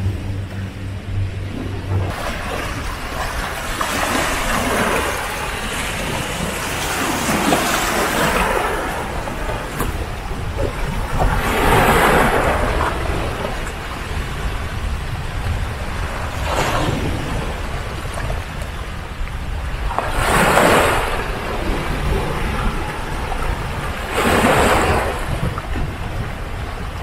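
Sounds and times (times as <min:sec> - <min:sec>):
steady low rumble: 0:00.0 - 0:20.4, 0:21.0 - 0:27.0
small waves washing over rocks: 0:02.1 - 0:13.8.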